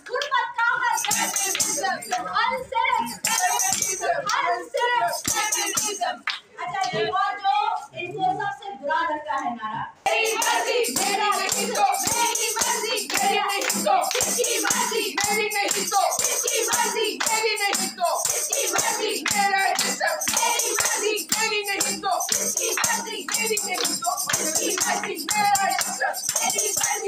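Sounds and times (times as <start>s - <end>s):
rhythmic hand-clapping: 0.0s - 7.1s, 10.1s - 27.0s
women chanting: 0.0s - 9.2s, 10.0s - 27.0s
tambourine beating: 0.9s - 2.3s, 3.0s - 6.2s, 10.1s - 27.0s.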